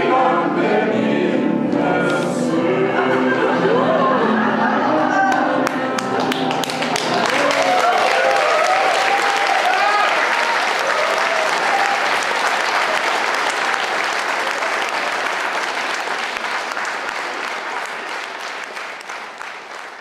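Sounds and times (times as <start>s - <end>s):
audience applauding: 5.2s - 20.0s.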